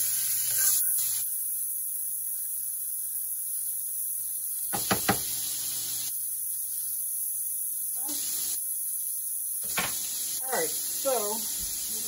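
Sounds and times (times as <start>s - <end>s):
steady high hiss: 0.0s - 12.0s
knife knocking on griddle pan: 4.7s - 5.3s.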